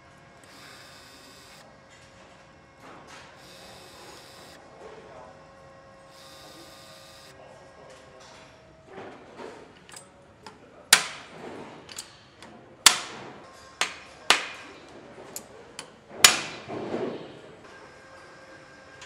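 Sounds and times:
metal tools clinking on engine parts: 9.8 - 10.6, 11.8 - 12.5.

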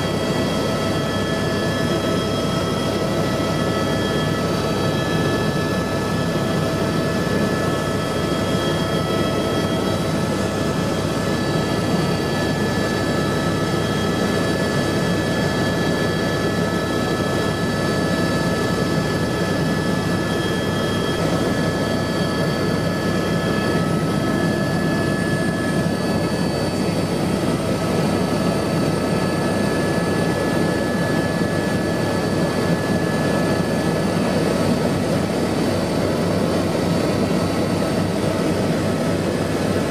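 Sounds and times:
helicopter rotor and engine noise: 0.0 - 39.9
high turbine whine: 0.0 - 39.9.

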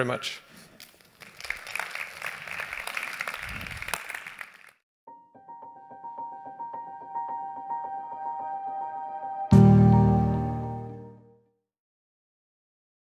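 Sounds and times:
audience applauding: 1.1 - 4.8
piano-like keyboard tune: 5.1 - 11.4.

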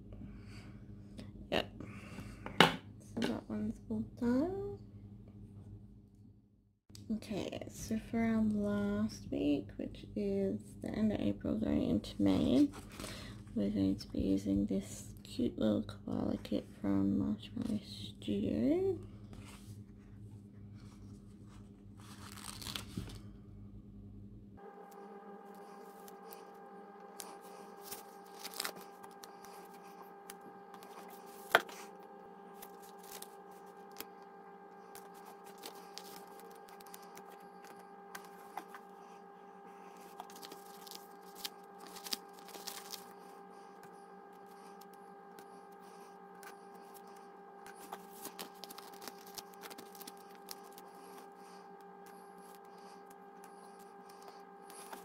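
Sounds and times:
low electrical hum: 0.0 - 55.0
paper rustling: 22.0 - 23.3, 27.1 - 30.0, 32.6 - 34.2, 34.8 - 38.8, 39.9 - 55.0.

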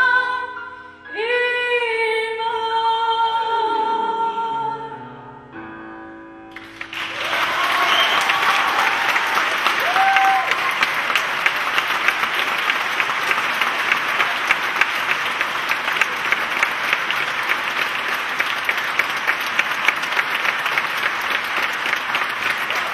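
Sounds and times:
audience applauding: 6.5 - 22.9.

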